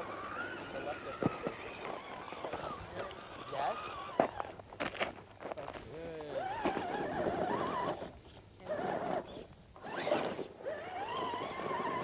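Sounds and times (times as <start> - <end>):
toy car electric motor whining: 0.0 - 12.0.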